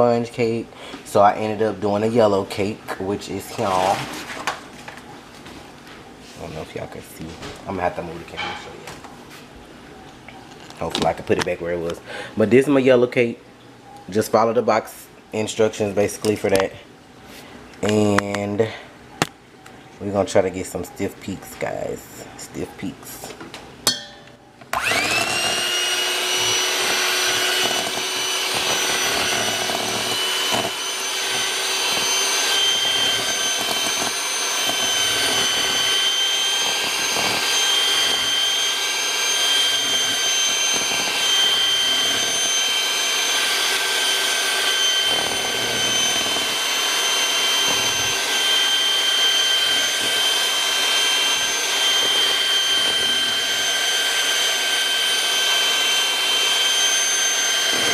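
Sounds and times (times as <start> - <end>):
electric hand mixer whining: 24.7 - 57.9.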